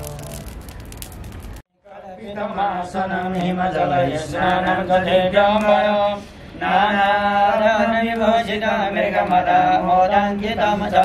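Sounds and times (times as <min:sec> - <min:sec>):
man chanting: 0:00.0 - 0:00.5.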